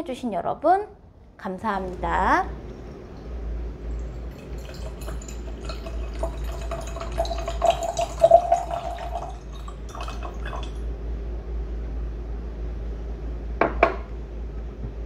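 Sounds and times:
water dripping: 4.0s - 10.8s
tea pouring into a glass pitcher: 4.0s - 10.9s.

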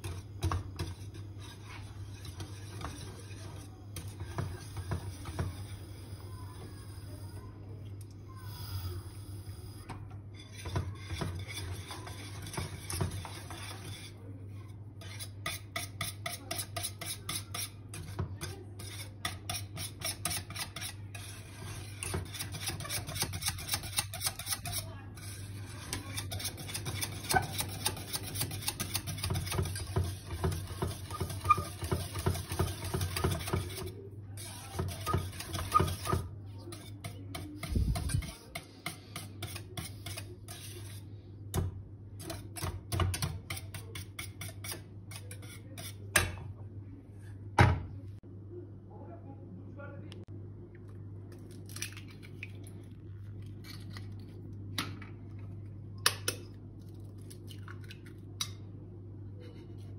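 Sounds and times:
whisk scraping against saucepan: 0.0s - 7.6s, 8.3s - 46.4s, 59.4s - 59.9s.

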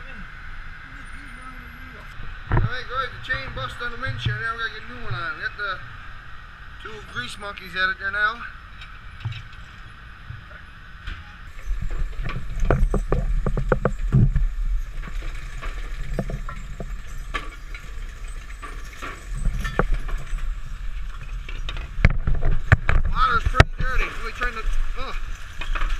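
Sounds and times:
boat engine and deck machinery rumbling: 0.0s - 25.9s
clanks and rattles of gear: 8.7s - 25.9s.

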